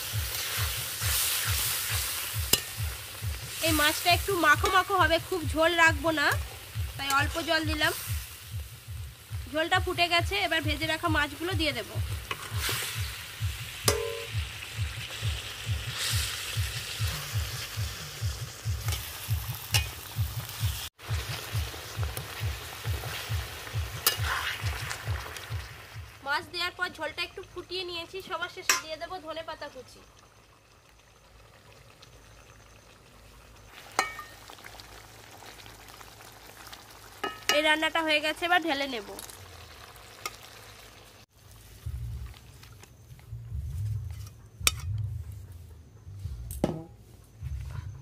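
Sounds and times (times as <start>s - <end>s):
thick gravy bubbling and sizzling: 0.0s - 45.3s
spatula clanking on metal pan: 2.5s - 2.8s, 13.9s - 14.3s, 19.7s - 20.1s, 24.0s - 24.4s, 28.7s - 29.0s, 34.0s - 34.3s, 37.2s - 37.7s, 44.6s - 45.0s
metal spatula clinking on pan: 13.9s - 14.3s, 19.7s - 20.0s, 28.7s - 29.0s, 34.0s - 34.4s.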